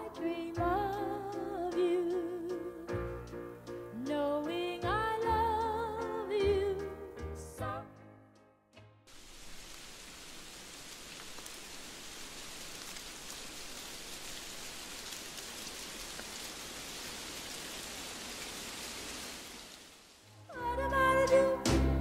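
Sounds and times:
steady even hiss: 9.1 - 20.3.

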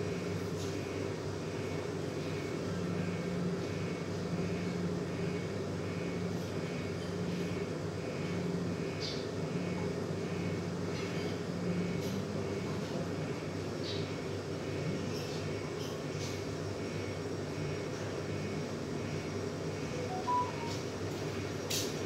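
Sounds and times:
machine drone with low hum: 0.0 - 22.0
faint pulsing high tone: 19.9 - 21.0.

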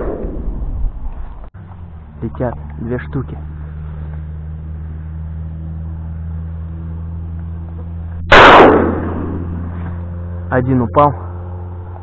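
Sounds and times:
steady low hum: 0.0 - 12.0
shotgun shot: 8.3 - 10.0.

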